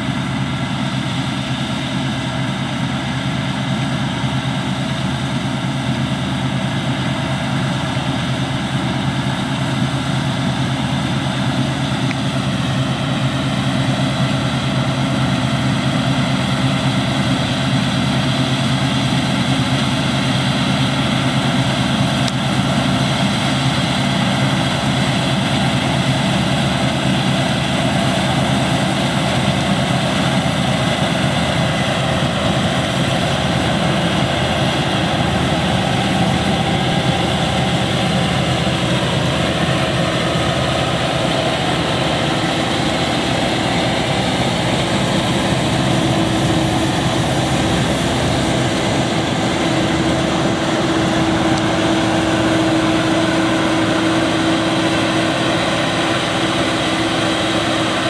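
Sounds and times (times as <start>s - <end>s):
drone of farm machinery: 0.0s - 58.0s.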